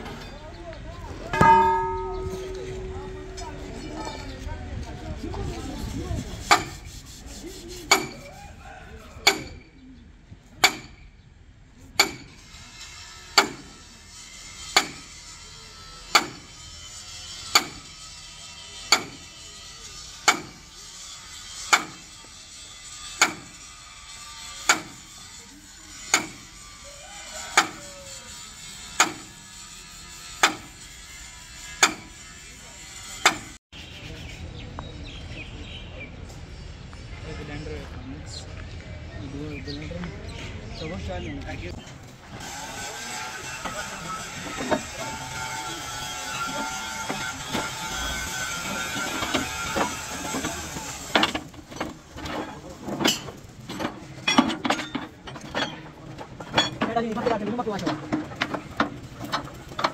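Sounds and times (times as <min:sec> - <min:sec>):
sledgehammer striking steel: 0:01.3 - 0:04.1, 0:10.6 - 0:11.1, 0:13.4 - 0:13.7, 0:14.7 - 0:15.1, 0:16.1 - 0:16.6, 0:17.5 - 0:17.9, 0:18.9 - 0:19.2, 0:20.2 - 0:20.6, 0:21.7 - 0:22.1, 0:23.2 - 0:23.6, 0:24.6 - 0:25.1, 0:26.1 - 0:26.4, 0:29.0 - 0:29.3, 0:30.4 - 0:30.8, 0:31.8 - 0:32.2.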